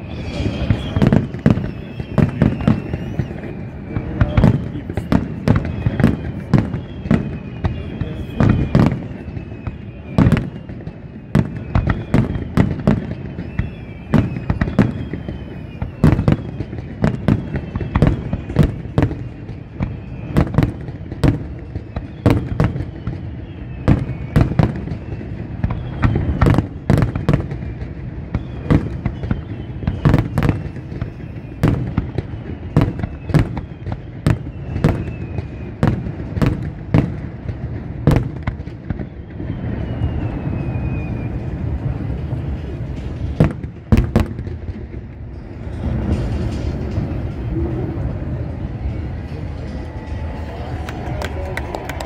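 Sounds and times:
falling whistle tones: 0.0s - 36.3s, 38.8s - 43.1s
fireworks bangs: 0.0s - 52.0s.

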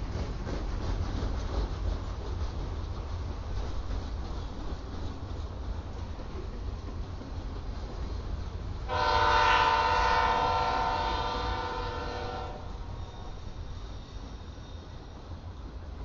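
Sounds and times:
locomotive air horn blast: 8.9s - 12.9s.

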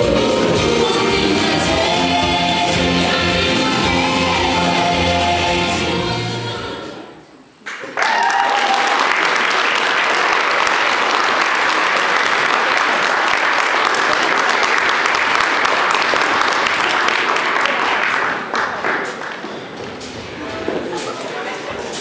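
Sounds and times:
music: 0.0s - 7.2s
audience applause: 7.7s - 19.5s.

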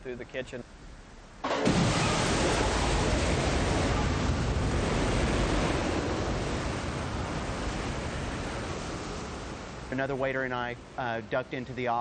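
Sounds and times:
tornado wind rushing: 1.4s - 11.0s.

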